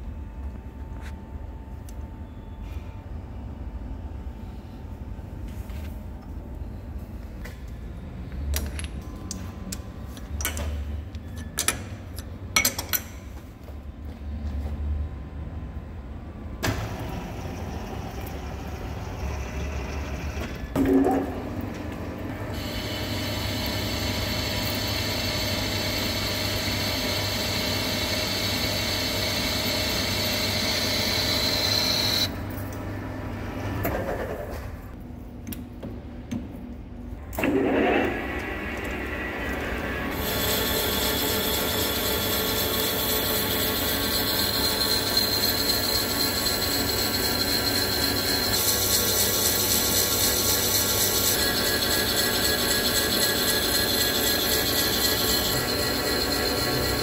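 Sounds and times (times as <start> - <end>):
lathe running: 16.6 - 20.6, 22.4 - 32.3, 37.4 - 57.0
high-pitched metal cutting: 40.2 - 57.0.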